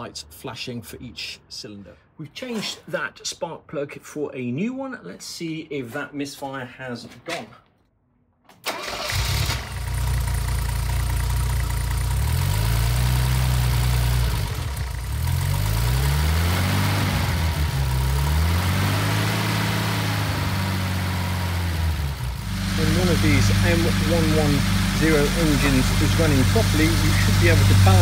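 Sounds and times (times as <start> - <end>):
car engine starting and revving: 8.7 - 28.0.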